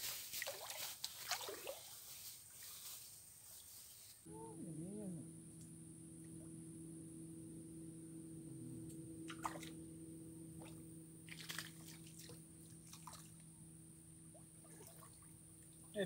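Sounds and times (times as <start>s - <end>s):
water splashes and drips: 0.3s - 1.9s, 11.3s - 13.3s, 14.6s - 15.3s
steady low hum: 4.2s - 16.0s.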